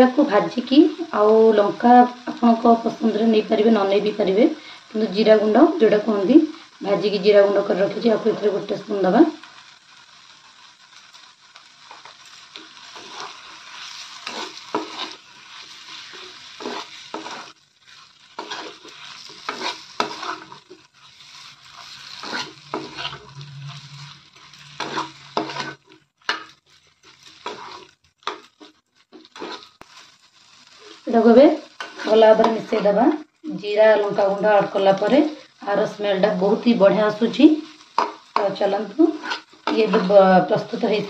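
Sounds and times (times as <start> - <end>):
oil sizzling: 0.0 - 41.0
spatula scraping a pan: 10.0 - 33.2, 36.4 - 41.0.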